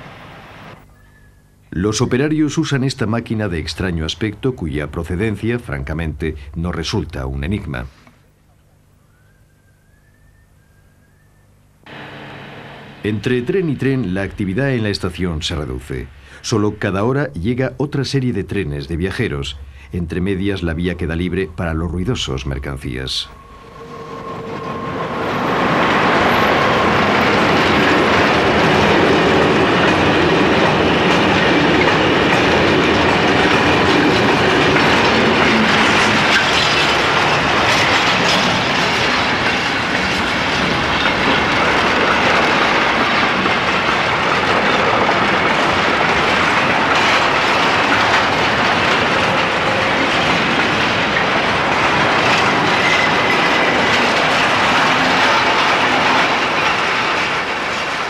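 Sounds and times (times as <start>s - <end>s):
freight train rumbling: 0.0s - 0.8s, 11.8s - 58.0s
train wheels clicking on rails: 23.3s - 58.0s.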